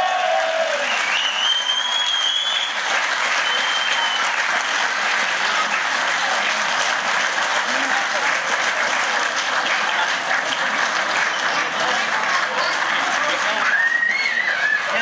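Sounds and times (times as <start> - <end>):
crowd applauding: 0.0 - 15.0
high drawn-out whistle: 0.8 - 2.8, 3.4 - 4.3, 13.7 - 15.0.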